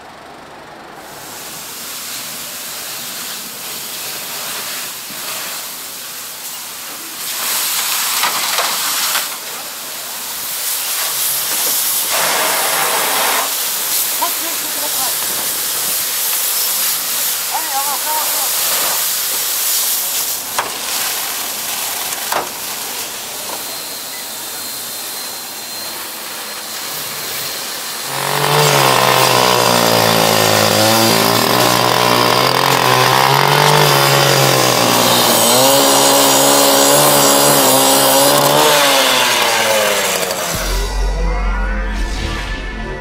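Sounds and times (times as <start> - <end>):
water jet spraying and hissing: 1.2 - 32.9
engine buzzing drone: 36.4 - 43.0.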